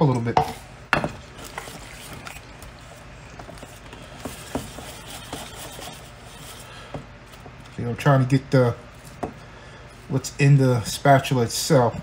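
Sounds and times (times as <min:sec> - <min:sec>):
whisk stirring batter in metal bowl: 0:01.2 - 0:07.8.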